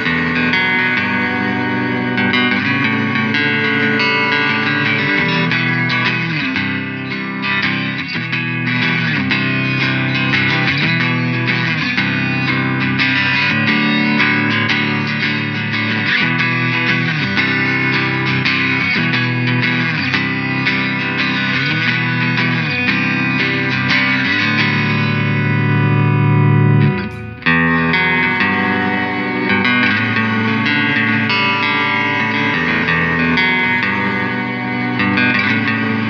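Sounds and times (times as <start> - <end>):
electric guitar melody: 0.0 - 36.0.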